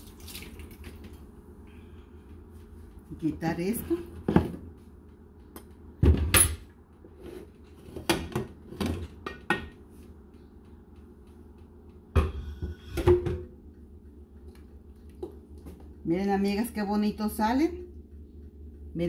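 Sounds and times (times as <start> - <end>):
metal lid knocks and clanks: 12.2 - 13.5.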